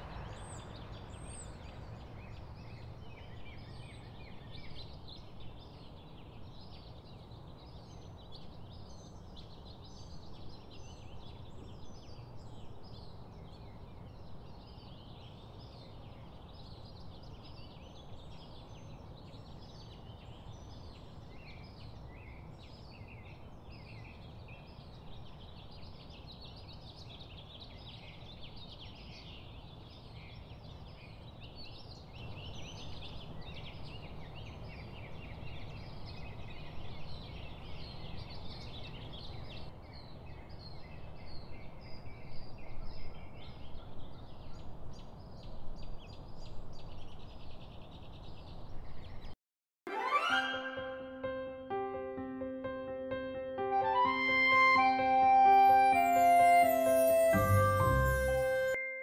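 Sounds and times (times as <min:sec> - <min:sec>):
birds chirping: 0:53.3 - 0:59.0.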